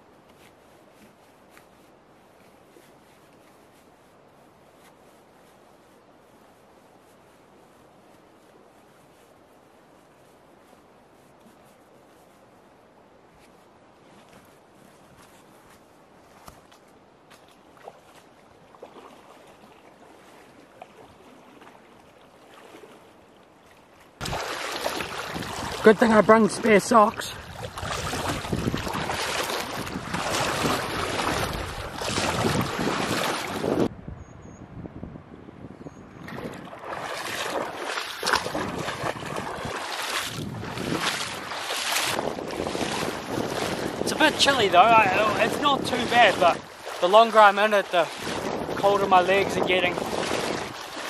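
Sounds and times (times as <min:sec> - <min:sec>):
footsteps on stony bank: 0:00.0 - 0:12.7, 0:13.3 - 0:33.9, 0:36.3 - 0:51.0
river water rushing: 0:17.7 - 0:33.9, 0:36.6 - 0:51.0.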